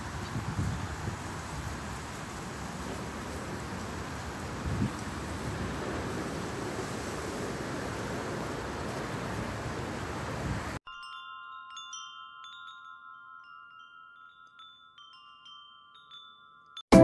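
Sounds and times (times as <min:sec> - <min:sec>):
rushing outdoor noise: 0:00.0 - 0:10.8
wind chime tinkling: 0:10.8 - 0:17.0.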